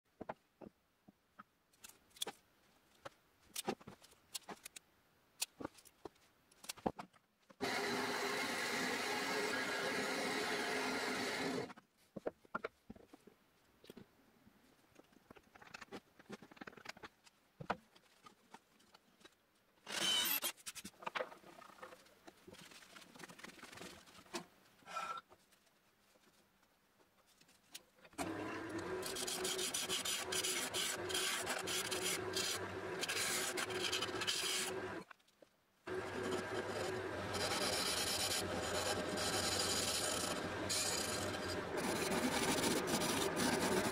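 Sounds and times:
bandsaw cutting wood: 0:07.6 - 0:11.7, 0:28.2 - 0:35.0, 0:35.9 - 0:43.9
gouge scraping spinning wood: 0:07.6 - 0:11.7, 0:28.2 - 0:35.0, 0:35.9 - 0:43.9
wood lathe running: 0:07.6 - 0:11.7, 0:28.2 - 0:35.0, 0:35.9 - 0:43.9.

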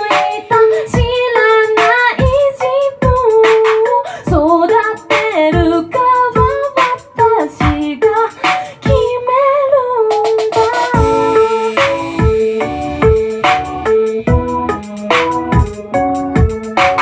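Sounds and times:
woman singing: 0:00.0 - 0:12.2.

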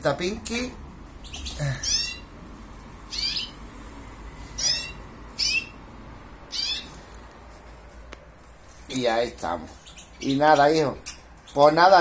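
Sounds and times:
small birds chirping: 0:00.2 - 0:03.7, 0:04.4 - 0:07.2, 0:08.9 - 0:12.0.

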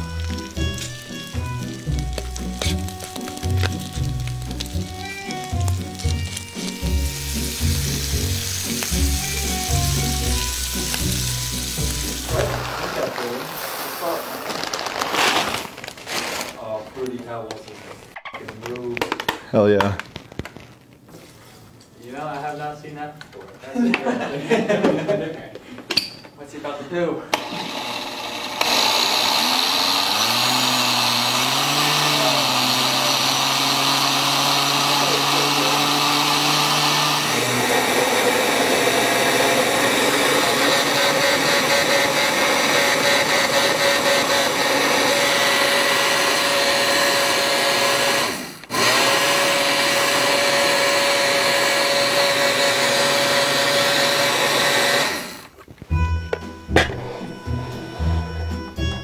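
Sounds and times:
countertop blender running: 0:00.0 - 0:15.7, 0:27.3 - 0:55.6.

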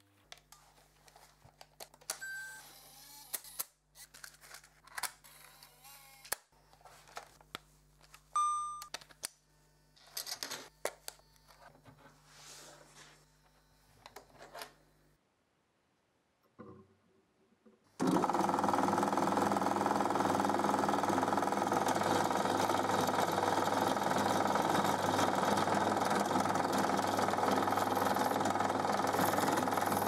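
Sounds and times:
short wavering motor whirs: 0:05.2 - 0:07.2.

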